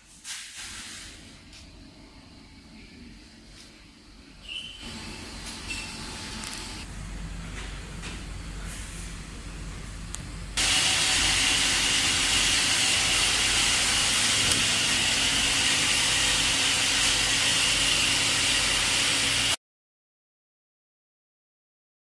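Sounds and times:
factory machinery hissing: 0:10.6 - 0:19.6.

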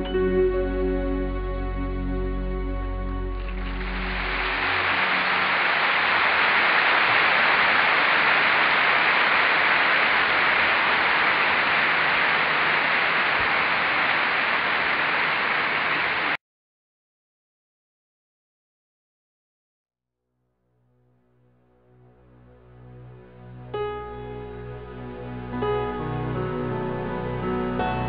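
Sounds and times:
loud static hiss: 0:03.3 - 0:16.4.

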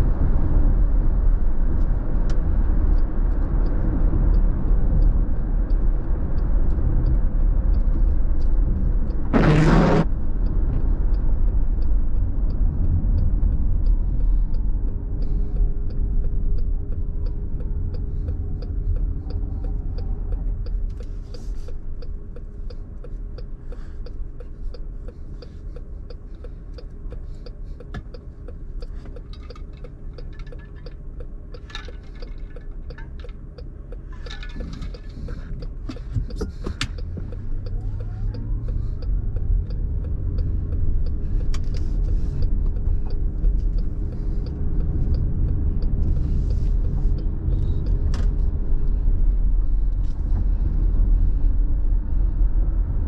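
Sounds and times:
car road noise: 0:00.0 - 0:53.0
car engine idling: 0:11.2 - 0:51.6.

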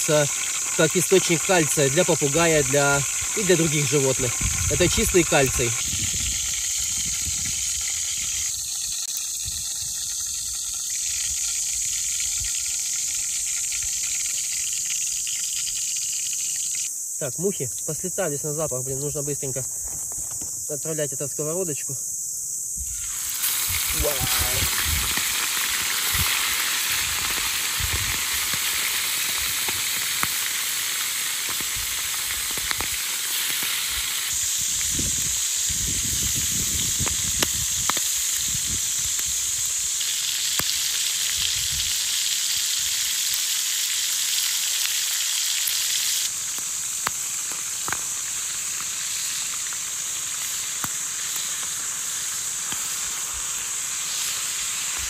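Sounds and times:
food sizzling in oil: 0:00.0 - 0:20.7, 0:22.7 - 0:55.0
oil popping and spitting: 0:22.9 - 0:55.0.

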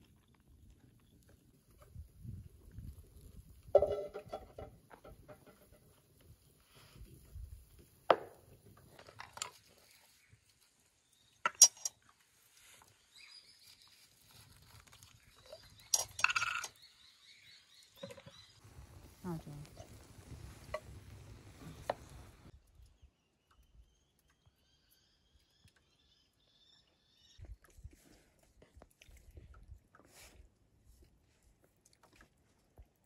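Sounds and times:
dishes and utensils clinking: 0:11.5 - 0:11.9, 0:15.9 - 0:16.8.

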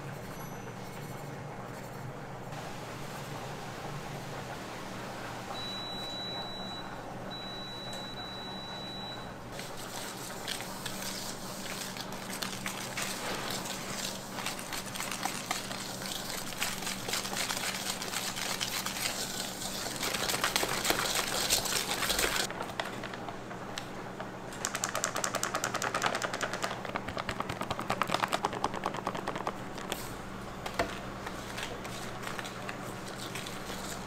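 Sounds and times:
rapid even clicking: 0:24.5 - 0:30.0.

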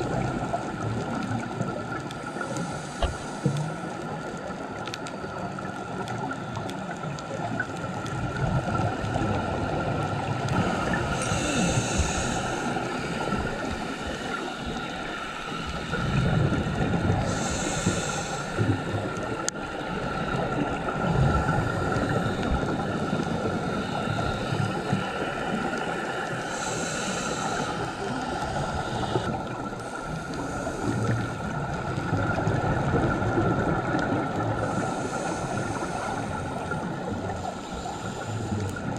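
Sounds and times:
exhaled bubbles rumbling: 0:00.0 - 0:38.9
regulator inhale hiss: 0:02.0 - 0:04.0, 0:10.5 - 0:31.8, 0:34.4 - 0:38.9.

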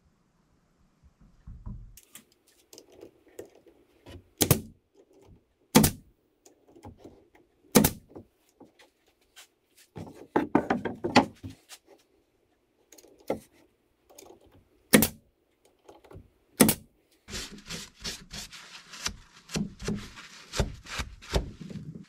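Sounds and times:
nail gun shots: 0:04.4 - 0:04.7, 0:05.7 - 0:06.1, 0:07.7 - 0:08.1, 0:14.9 - 0:15.2, 0:16.6 - 0:16.9
wooden frame knocks and clicks: 0:10.0 - 0:11.6.

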